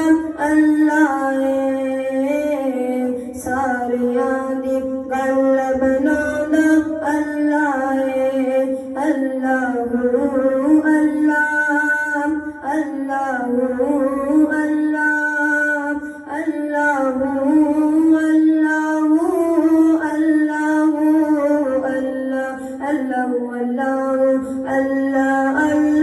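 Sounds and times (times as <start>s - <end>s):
boy reciting solo: 0.0s - 26.0s.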